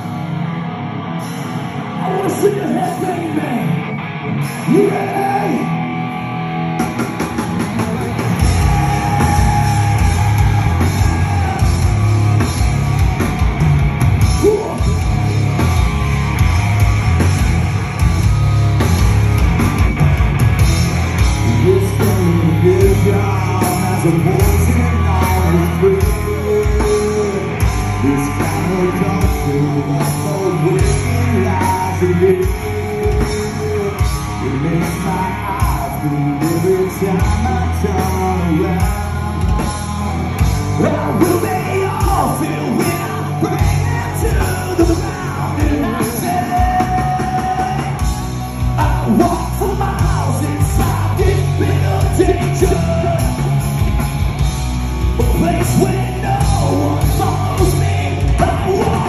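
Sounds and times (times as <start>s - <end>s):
live rock band playing: 0.0s - 59.0s
person singing: 7.4s - 12.5s, 21.4s - 53.6s, 55.1s - 59.0s.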